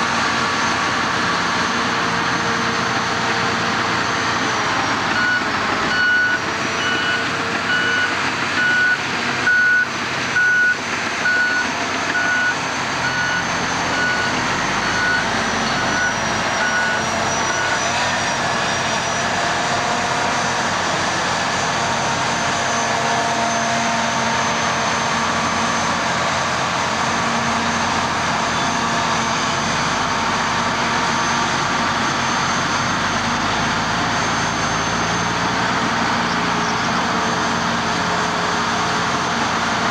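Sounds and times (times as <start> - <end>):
diesel truck engine running: 0.0 - 39.9
reversing alarm beeping: 2.3 - 24.8.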